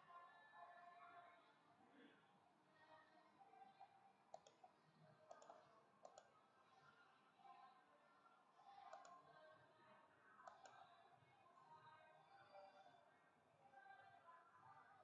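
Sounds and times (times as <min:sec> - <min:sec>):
computer mouse clicks: 0:04.3 - 0:06.3, 0:08.8 - 0:09.3, 0:10.4 - 0:11.0.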